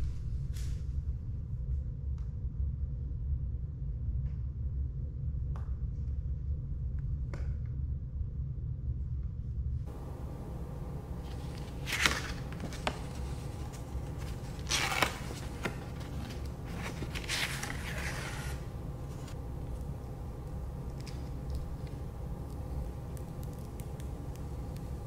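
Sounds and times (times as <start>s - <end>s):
low hum: 6.1s - 25.0s
paper envelope crinkling: 9.9s - 25.0s.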